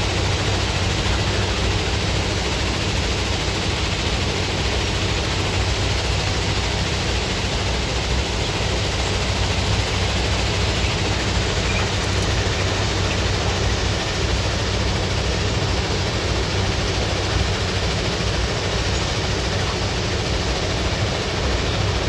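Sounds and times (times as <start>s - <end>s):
heavy machine rumble: 0.0s - 22.0s.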